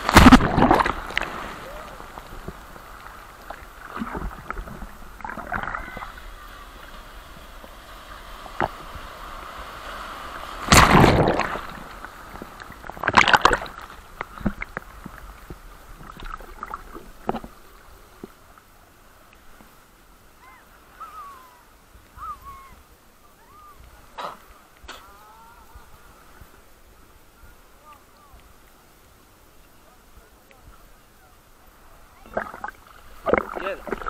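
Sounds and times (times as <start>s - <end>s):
sea waves crashing: 0.0s - 18.2s, 20.2s - 28.4s, 30.2s - 34.0s
water sloshing: 0.0s - 18.4s, 32.1s - 34.0s.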